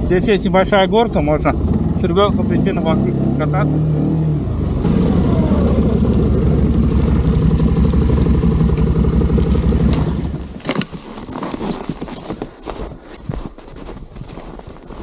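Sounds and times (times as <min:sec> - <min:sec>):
atv engine running: 0:00.0 - 0:10.9
crunches and clicks: 0:08.8 - 0:13.7.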